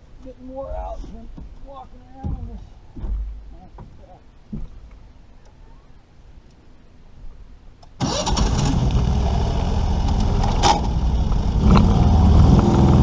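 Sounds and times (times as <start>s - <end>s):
boat motor starting and running: 8.0s - 13.0s.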